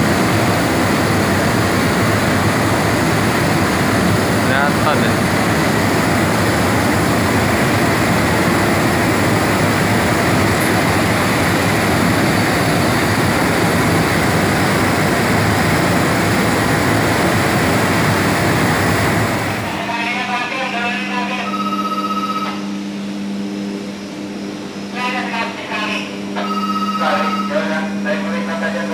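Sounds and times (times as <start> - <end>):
dense industrial rush: 0.0 - 19.9.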